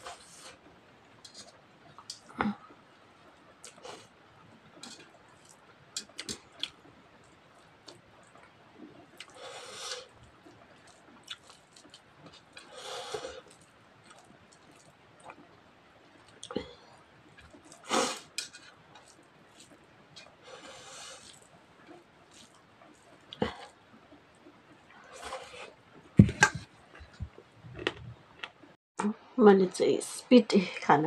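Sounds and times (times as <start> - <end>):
mouth chewing: 10.8 - 15.4
fingers mixing rice on a plate: 22.2 - 23.3.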